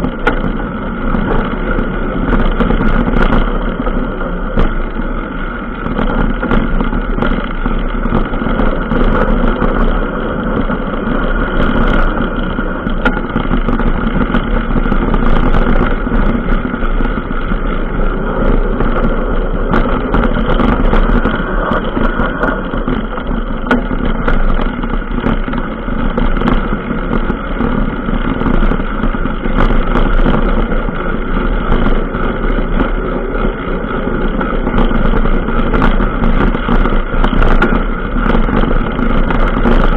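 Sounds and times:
clicks and rattles from bumps: 0.0 - 39.9
rushing noise of vehicle ride: 0.0 - 39.9.

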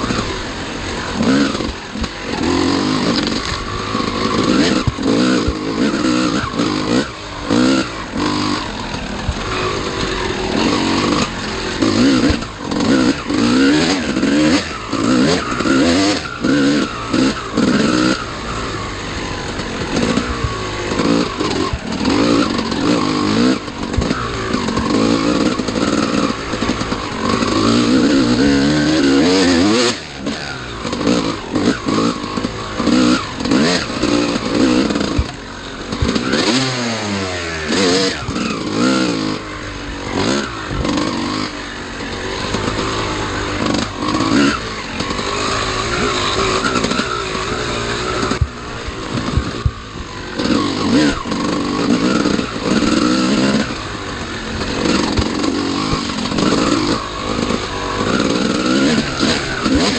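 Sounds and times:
bike rattling over rough ground: 0.0 - 59.9
dirt bike engine revving: 0.0 - 59.9.

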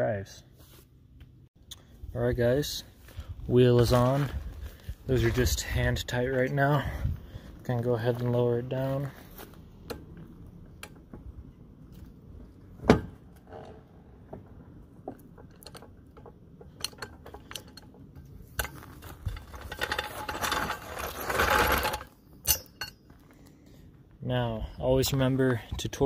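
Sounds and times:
metal clicks and knocks: 9.8 - 11.3, 12.8 - 20.8
jack rattling and scraping: 13.1 - 23.4.

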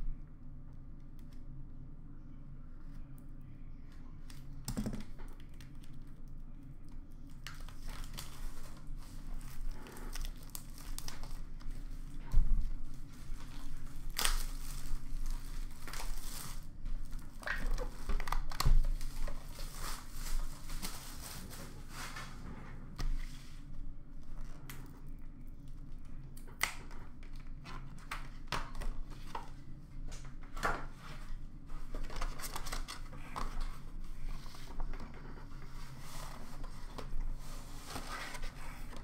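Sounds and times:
plastic wrap crinkling and tearing: 4.3 - 22.2, 31.8 - 39.0.

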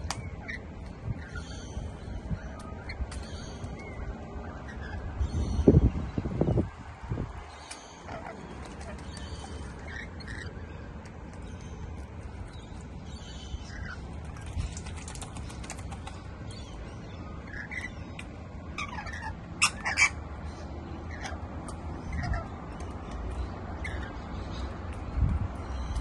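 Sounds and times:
birds chattering calls: 0.0 - 26.0
steady low rumble: 0.0 - 26.0
wings splashing in water: 13.9 - 16.5.

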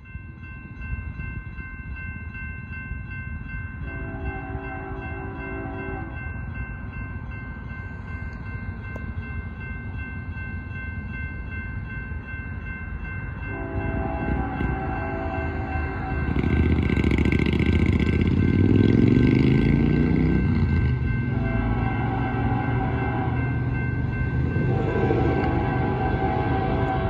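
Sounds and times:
distant locomotive air horn: 3.8 - 6.2, 13.5 - 16.9, 21.3 - 23.8, 24.4 - 27.0.

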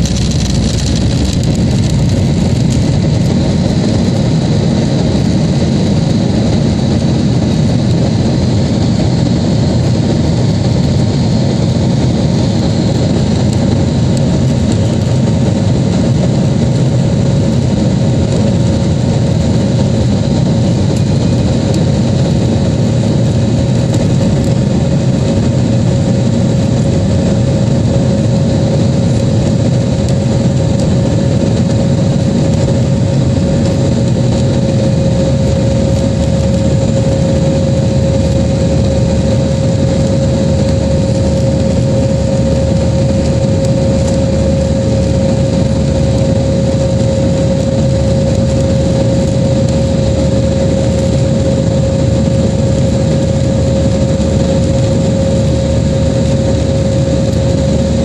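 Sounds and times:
jet engine deep rumble in cabin: 0.0 - 58.0.

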